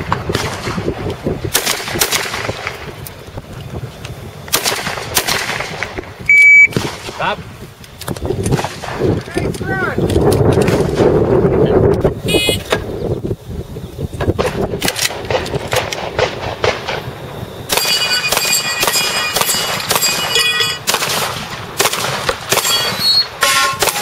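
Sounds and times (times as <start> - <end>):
shotgun shots: 0.1 - 2.9, 4.5 - 6.0, 6.7 - 7.4, 14.4 - 17.1, 17.7 - 24.0
metallic ring of steel targets: 17.7 - 20.9, 22.5 - 24.0.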